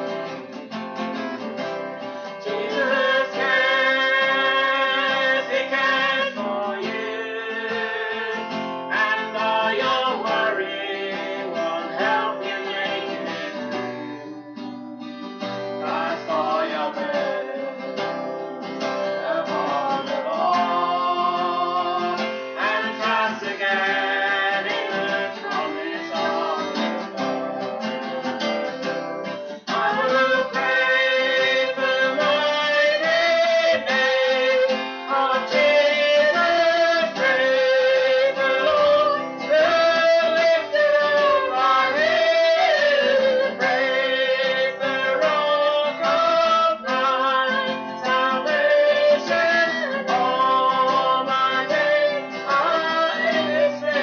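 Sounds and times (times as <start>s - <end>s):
strummed acoustic guitar: 0.0s - 54.0s
woman and man singing: 2.2s - 18.2s, 19.0s - 28.9s, 29.5s - 54.0s.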